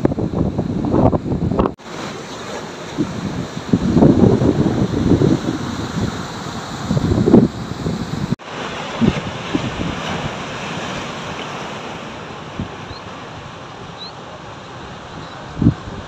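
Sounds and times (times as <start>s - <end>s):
wind buffeting microphone: 0.0s - 1.8s, 2.9s - 11.3s, 15.4s - 16.0s
heavy surf breaking: 0.0s - 16.0s.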